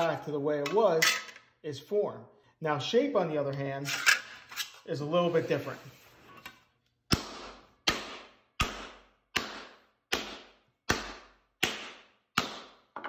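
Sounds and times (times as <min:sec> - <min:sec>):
mallet striking sheet metal: 0:07.1 - 0:12.8.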